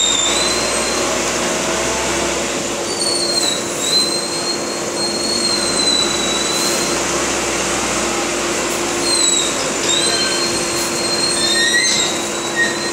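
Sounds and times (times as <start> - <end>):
shrill metallic squeal: 0.0 - 1.1, 2.9 - 6.9, 9.0 - 12.9.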